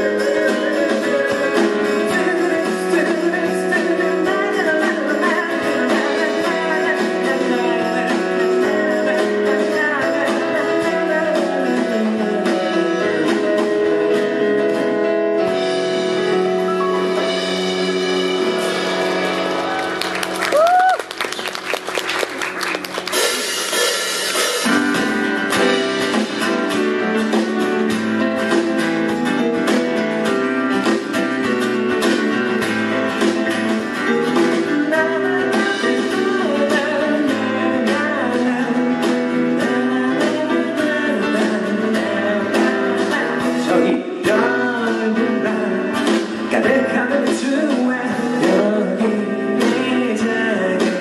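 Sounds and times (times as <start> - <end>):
man singing: 0.0 - 15.4, 33.0 - 51.0.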